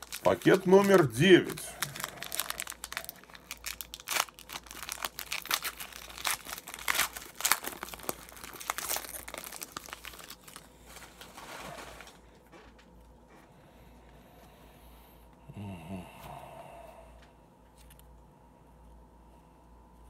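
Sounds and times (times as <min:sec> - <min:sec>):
foil wrapper crinkling and tearing: 0:00.0 - 0:12.8.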